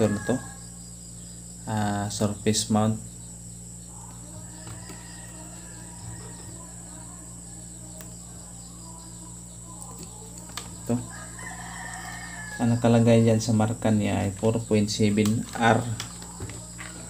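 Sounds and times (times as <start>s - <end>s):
insect chirring: 0.0s - 17.0s
low steady hum: 0.0s - 17.0s.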